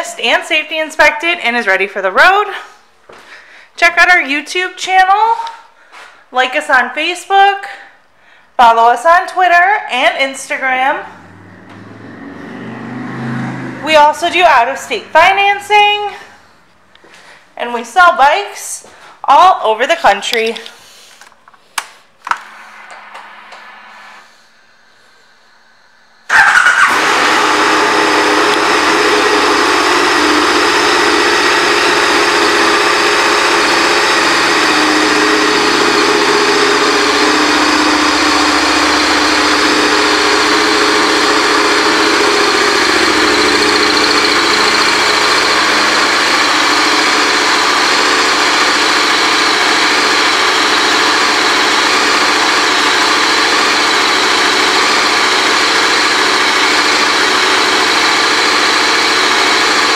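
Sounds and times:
motorcycle engine starting and idling: 10.8s - 17.2s, 22.1s - 59.9s.

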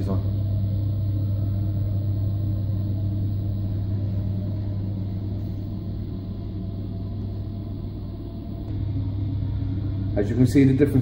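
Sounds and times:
gas boiler humming: 0.0s - 11.0s.

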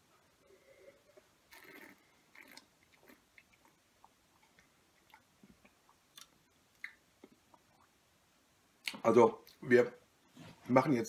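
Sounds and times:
wet mouth clicks and lip smacks: 1.6s - 7.9s.

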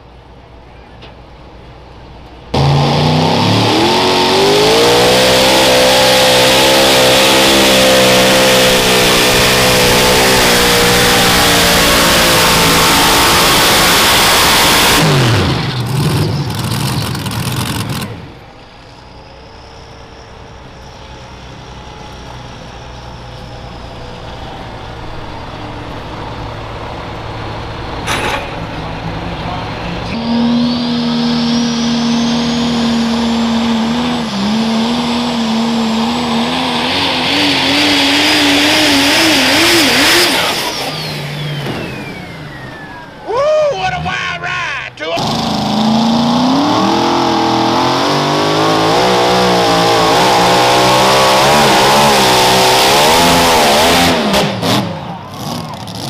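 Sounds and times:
diesel truck engine under load: 0.0s - 56.0s
pulling tractor at full throttle: 0.0s - 56.0s
high whistle: 30.2s - 34.5s.

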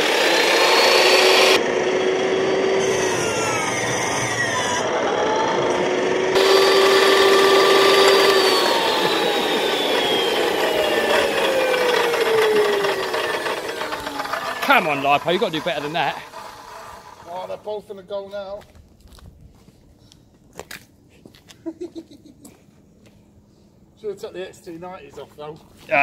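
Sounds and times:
electric chop saw whining: 0.0s - 17.7s.

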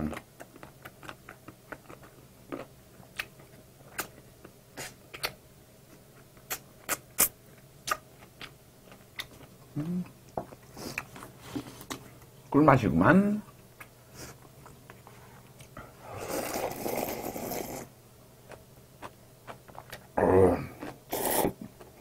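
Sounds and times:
wet chewing and lip-smacking: 0.1s - 11.2s
short low vocal sound: 20.2s - 20.8s.

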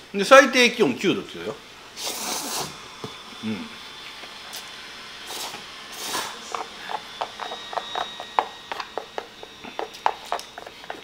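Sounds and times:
person slurping noodles: 2.0s - 2.8s.

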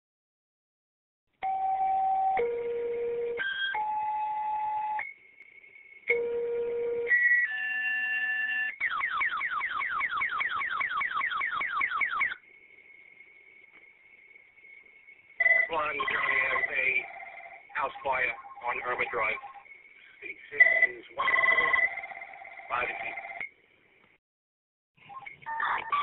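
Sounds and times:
faint high whine: 1.5s - 8.7s, 12.1s - 24.1s
pager tones over radio: 15.4s - 19.7s, 20.4s - 22.0s, 25.1s - 26.0s.

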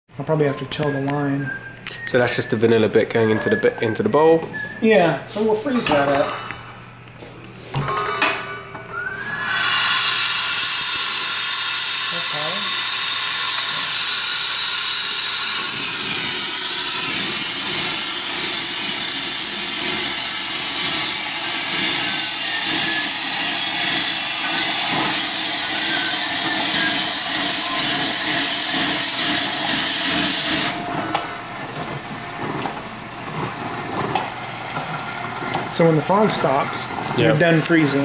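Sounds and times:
liquid nitrogen hissing: 9.0s - 38.0s.

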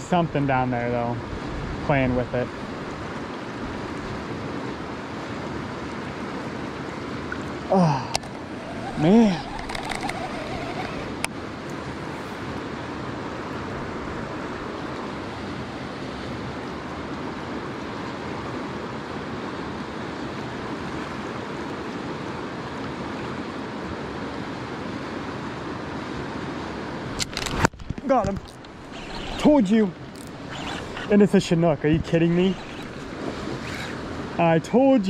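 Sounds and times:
river water rushing: 4.6s - 18.0s, 26.0s - 34.5s.

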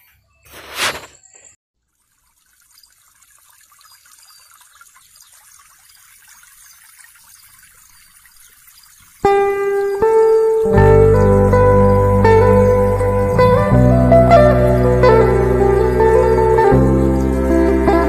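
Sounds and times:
faint hiss with crackle: 0.5s - 1.6s.

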